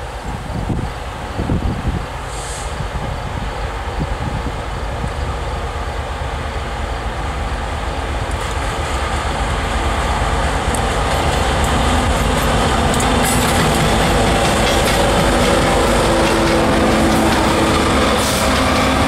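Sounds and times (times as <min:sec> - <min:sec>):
diesel locomotives passing: 0:00.0 - 0:19.0
wheels clicking on rails: 0:10.6 - 0:19.0.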